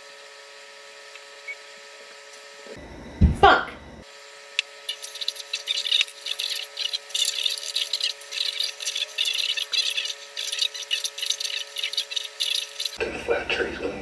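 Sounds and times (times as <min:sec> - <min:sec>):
paintbrush scratching stone: 0:04.9 - 0:13.0.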